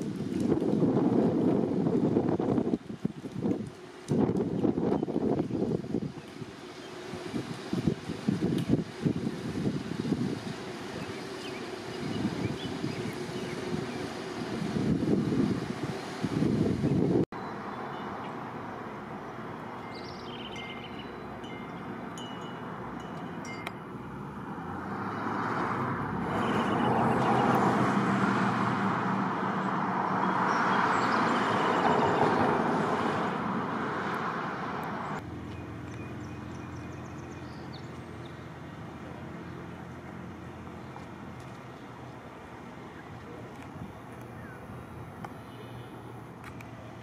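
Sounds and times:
vehicle passing: 0:17.5 - 0:47.0.

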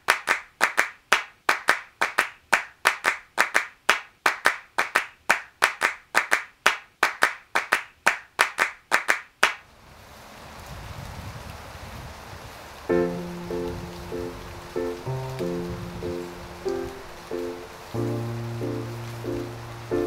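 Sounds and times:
rhythmic handclaps: 0:00.0 - 0:09.6.

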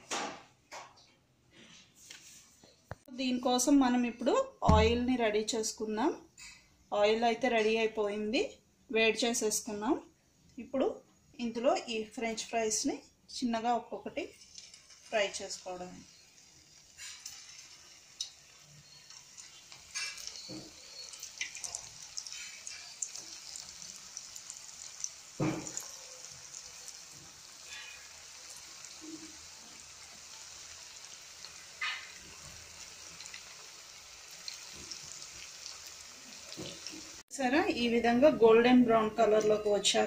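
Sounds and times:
fries sizzling in hot oil: 0:14.0 - 0:37.2.

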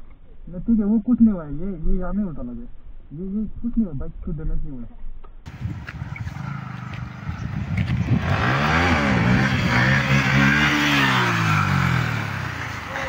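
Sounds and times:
vehicle engine passing by: 0:05.8 - 0:13.0.

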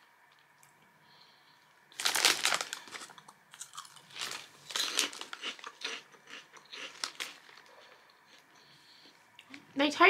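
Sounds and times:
person chewing crunchy snack: 0:01.9 - 0:08.7.

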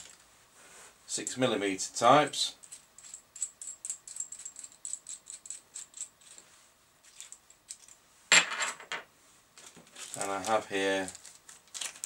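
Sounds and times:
plastic bag crinkling: 0:09.6 - 0:12.0.

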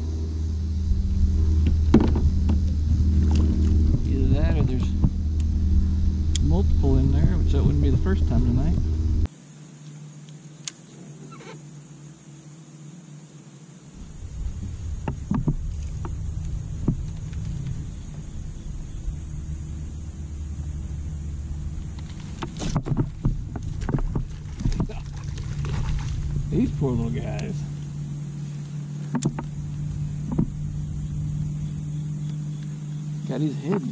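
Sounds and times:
low steady rumble: 0:00.0 - 0:09.3, 0:13.9 - 0:33.9
kayak handling clicks and knocks: 0:21.9 - 0:26.2, 0:29.1 - 0:29.5.

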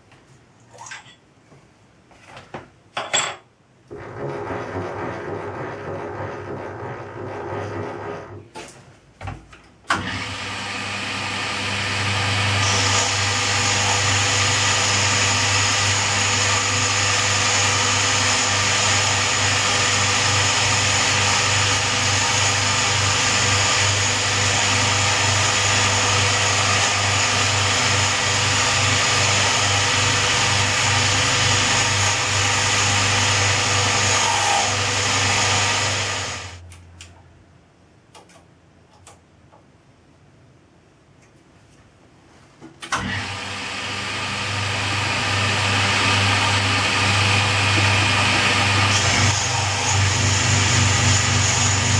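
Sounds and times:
milling machine running: 0:10.0 - 0:36.6, 0:43.0 - 0:51.9.

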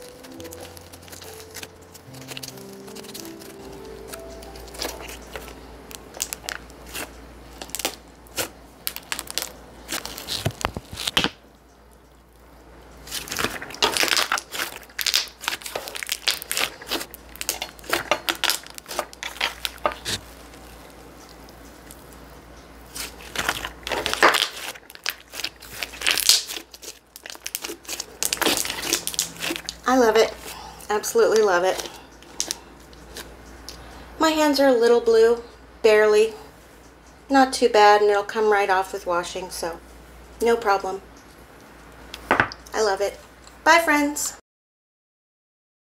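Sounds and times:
slime kneaded by hand crackling: 0:00.0 - 0:33.8.

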